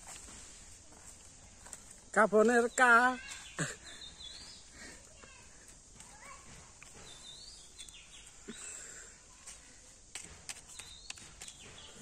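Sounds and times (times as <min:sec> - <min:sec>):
steady outdoor hiss: 0:00.0 - 0:12.0
birds chirping: 0:01.5 - 0:05.4, 0:06.1 - 0:09.0, 0:10.6 - 0:12.0.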